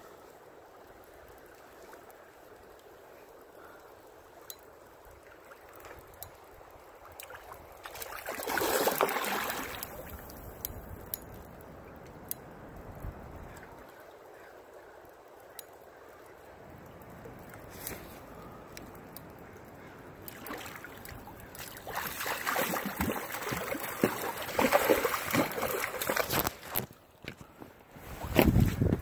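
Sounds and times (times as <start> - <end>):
river water gurgling: 0.1 - 26.9
faint clicks: 9.8 - 21.8.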